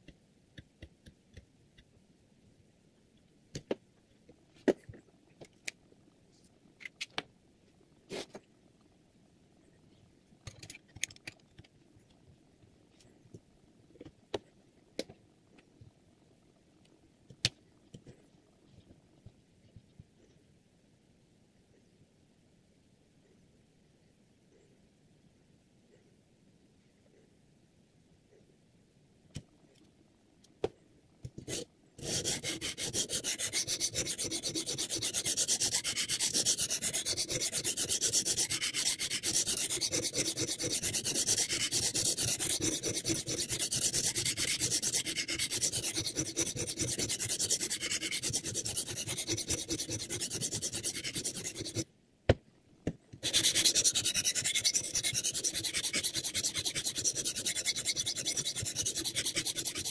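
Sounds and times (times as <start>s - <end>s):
sharpening stone scraping knife: 31.5s - 51.8s, 53.2s - 59.9s.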